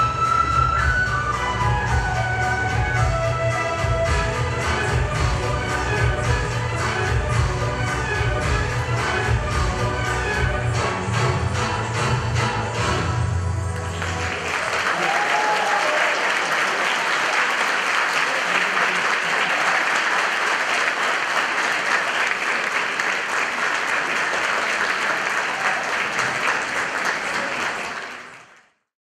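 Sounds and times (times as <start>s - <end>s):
audience applauding: 13.7s - 28.8s.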